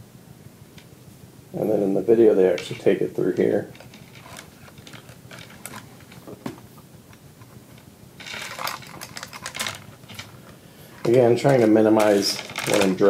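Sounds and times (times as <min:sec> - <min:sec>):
metal chain clinking and rattling: 0:08.2 - 0:10.4, 0:11.0 - 0:13.0.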